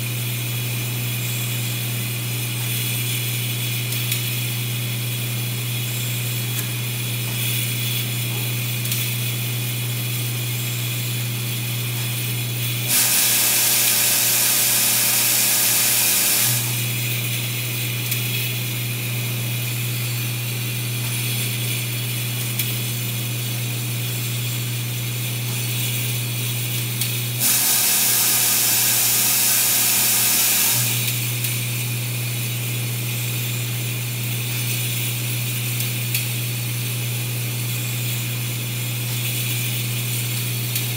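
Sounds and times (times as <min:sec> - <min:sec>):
machinery hum: 0:00.0 - 0:34.6
loud hiss: 0:12.9 - 0:16.8, 0:27.4 - 0:31.0.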